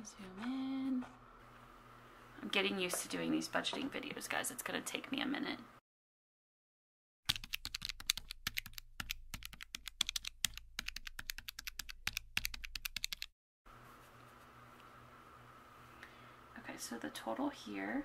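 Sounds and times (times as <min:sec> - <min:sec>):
faint room hum: 0:00.0 - 0:05.8, 0:13.7 - 0:18.0.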